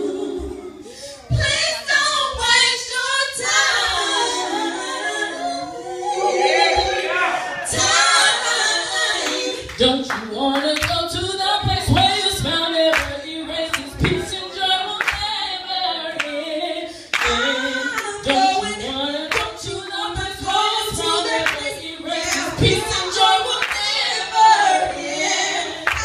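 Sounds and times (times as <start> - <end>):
audience clapping along: 9.2 - 11.0, 12.9 - 14.4, 15.0 - 15.4, 17.1 - 18.5, 19.3 - 19.6, 21.3 - 21.7, 22.3 - 22.9, 23.5 - 24.1.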